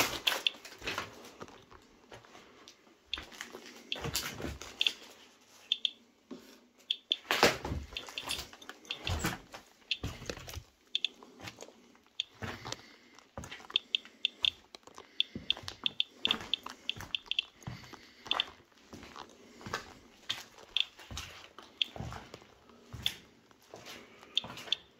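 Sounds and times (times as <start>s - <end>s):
footsteps on debris: 0.0s - 2.6s, 7.6s - 13.9s
geiger counter chirps: 5.7s - 6.0s, 6.9s - 9.2s, 10.9s - 11.2s, 12.2s - 12.4s, 13.7s - 14.6s, 15.2s - 17.6s, 20.7s - 21.0s.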